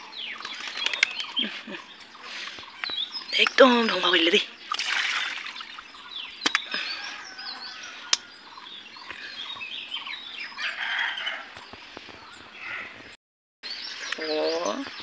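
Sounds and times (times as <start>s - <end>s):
birds chirping and calling: 0.0s - 15.0s
sharp clicks: 0.4s - 1.4s, 6.4s - 6.8s.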